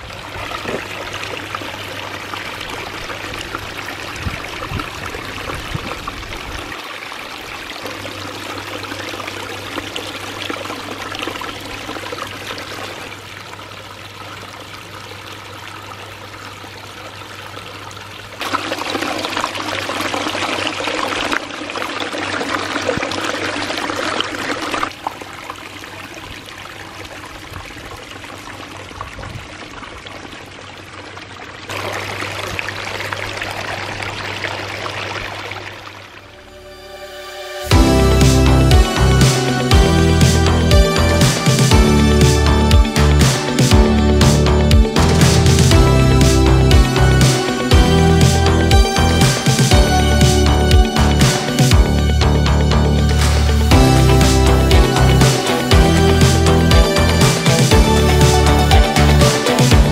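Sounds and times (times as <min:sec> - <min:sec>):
water splashing over rocks: 0:00.0 - 0:36.2.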